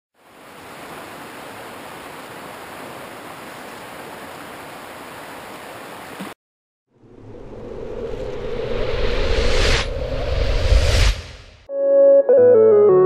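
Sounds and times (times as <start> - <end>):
river water running over rocks: 0.2 - 6.4.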